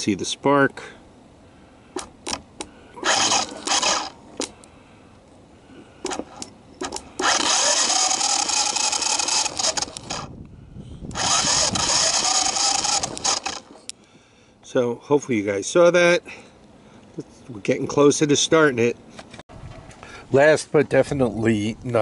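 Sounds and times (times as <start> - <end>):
sharp ignition clicks: 2.0 - 4.7, 6.0 - 14.2
engine cranking over: 3.0 - 4.5, 6.0 - 10.3, 11.1 - 13.9.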